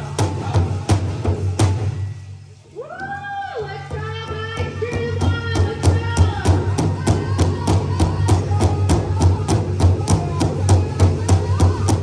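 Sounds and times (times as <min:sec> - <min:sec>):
large drum beating fast: 0:03.8 - 0:12.0.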